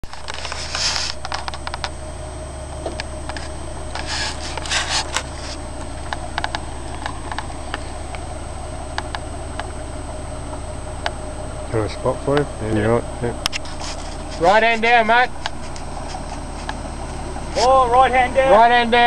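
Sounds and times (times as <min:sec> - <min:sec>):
scraping bursts: 0:00.0 - 0:02.1, 0:03.2 - 0:10.7, 0:11.6 - 0:19.0
engine humming: 0:00.0 - 0:19.0
sharp clicks: 0:05.8 - 0:08.3.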